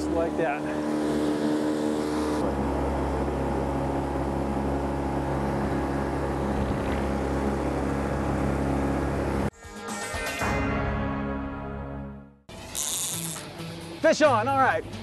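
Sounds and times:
outboard motor running: 0.0 - 9.5
water hissing along boat: 0.0 - 9.5.

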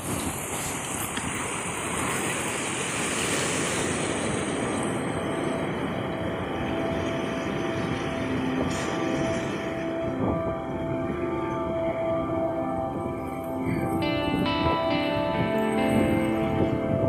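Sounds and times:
ocean surf over rocks: 0.0 - 17.0
faint music with held notes: 5.0 - 17.0.

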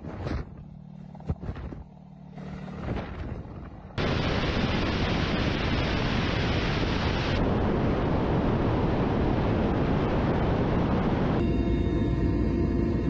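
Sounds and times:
helicopter rotor and engine noise: 0.0 - 7.6, 10.8 - 13.0
rushing wind roar: 1.3 - 12.6.

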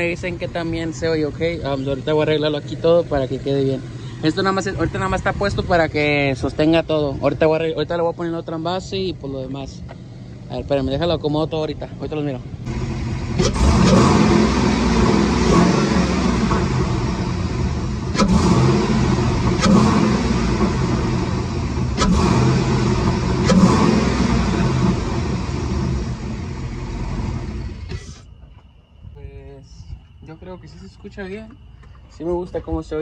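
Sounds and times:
truck engine revving: 0.0 - 9.6, 12.2 - 28.3.

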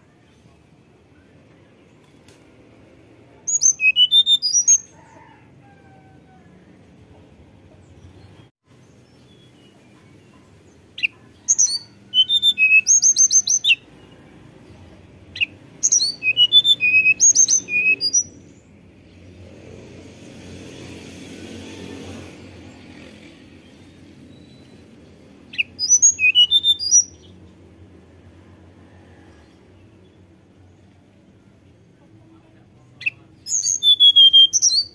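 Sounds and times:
bird singing high whistled notes: 3.5 - 4.9, 11.0 - 13.8, 15.4 - 18.6, 25.5 - 27.4, 33.0 - 34.9.

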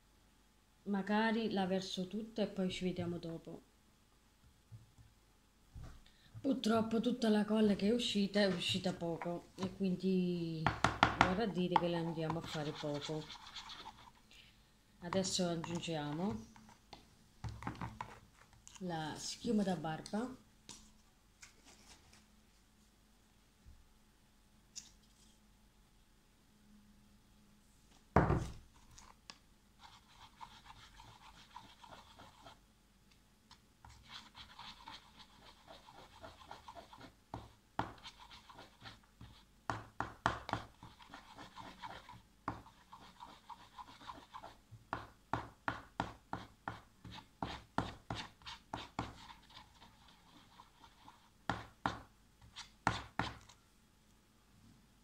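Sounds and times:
spoon stirring in plastic tub: 10.7 - 14.2, 15.1 - 18.8, 28.3 - 32.6, 33.8 - 44.6, 46.0 - 53.6.

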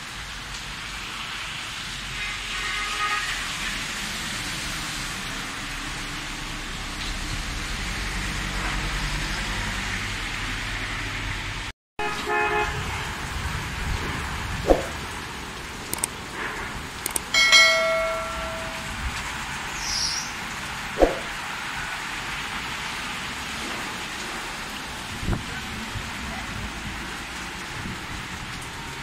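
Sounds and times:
heavy rain on road: 0.0 - 18.0, 18.8 - 29.0
quick whooshes: 14.6 - 15.0, 21.0 - 21.4
bell chime: 17.3 - 19.0.

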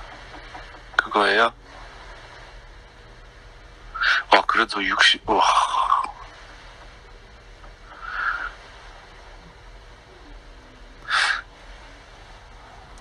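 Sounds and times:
faint steady hum: 0.0 - 13.0
short hiss-like burst: 7.9 - 9.4, 11.1 - 13.0.

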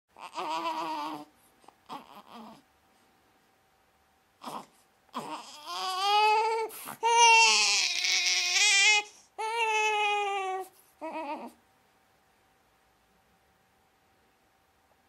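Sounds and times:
newborn baby crying: 0.1 - 2.7, 4.4 - 11.6.

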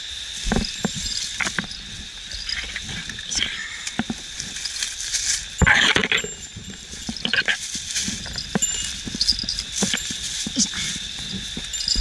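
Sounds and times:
footsteps crunching through leaves: 0.3 - 3.3, 4.2 - 12.0
plastic bag rustling: 4.2 - 12.0.

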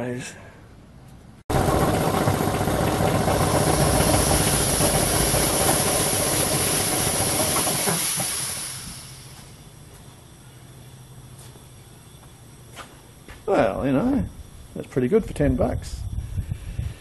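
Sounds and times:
air compressor running: 1.5 - 17.0
hiss of air: 3.4 - 12.1.

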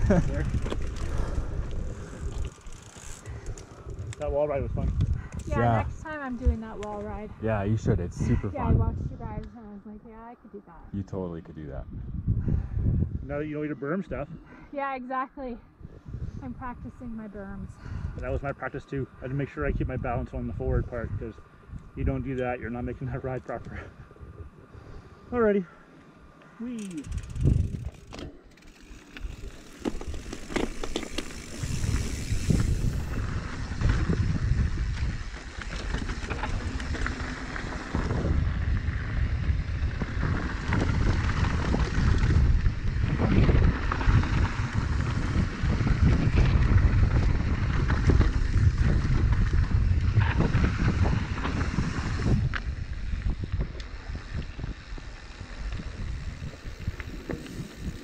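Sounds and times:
bike tyres and frame clattering: 0.0 - 5.5, 26.6 - 58.0
wind buffeting microphone: 0.0 - 10.2, 10.9 - 25.6, 26.8 - 58.0.

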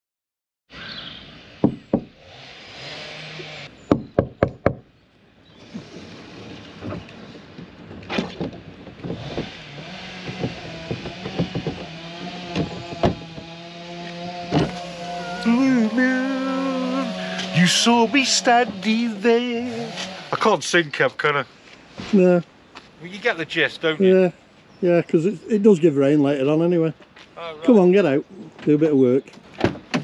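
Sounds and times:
sharp knocks: 1.6 - 2.2, 3.9 - 4.9, 7.9 - 15.0
light knocks and clatter: 10.2 - 13.5.

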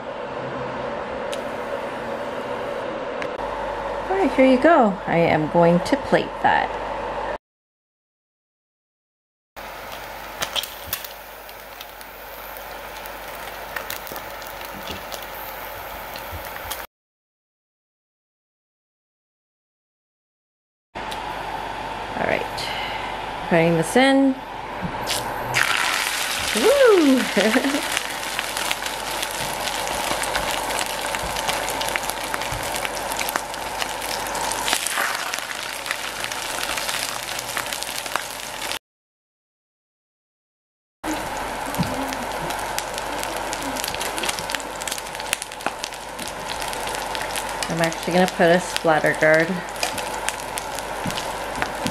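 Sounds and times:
egg sizzling in oil: 9.6 - 16.9, 25.1 - 38.8, 41.1 - 51.9
oil popping and crackling: 9.6 - 16.9, 25.1 - 38.8, 41.0 - 51.9.

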